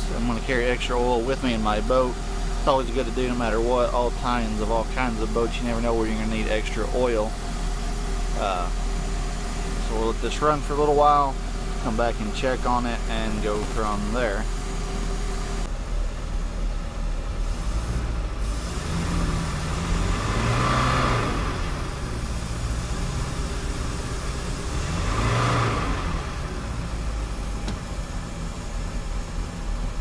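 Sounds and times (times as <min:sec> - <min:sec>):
marine engine droning: 0:00.0 - 0:16.1.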